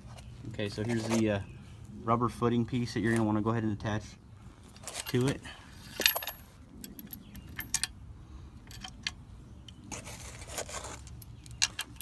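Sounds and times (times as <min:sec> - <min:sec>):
bolts and washers rattling in metal: 0:04.8 - 0:08.0, 0:10.9 - 0:12.0.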